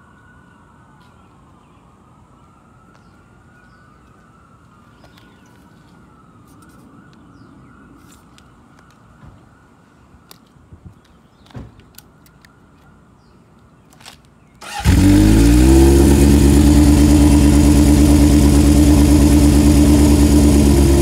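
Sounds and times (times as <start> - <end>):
distant siren wailing: 0.0 - 8.1, 14.7 - 21.0
low rumble of street: 0.0 - 21.0.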